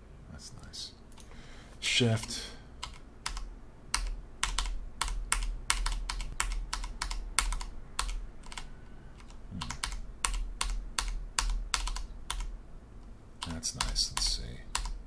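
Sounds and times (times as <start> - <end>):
computer keyboard key clicks: 2.8 - 12.5, 13.4 - 15.0.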